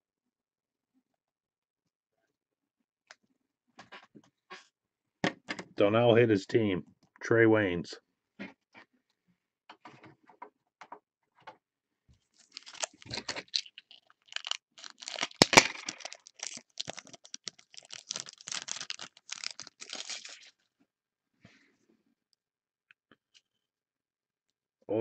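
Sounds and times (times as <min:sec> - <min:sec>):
foil wrapper crinkling: 0:12.4 - 0:20.6
sharp crack: 0:14.4 - 0:17.1.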